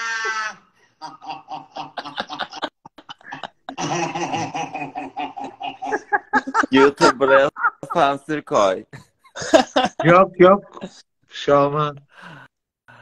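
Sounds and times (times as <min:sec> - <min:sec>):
women laughing: 0:00.0 - 0:08.2, 0:09.2 - 0:10.2.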